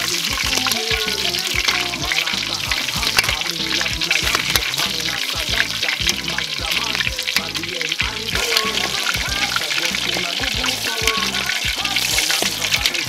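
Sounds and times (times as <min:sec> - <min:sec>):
background music with beat: 0:00.0 - 0:13.0
oil sizzling: 0:00.0 - 0:13.0.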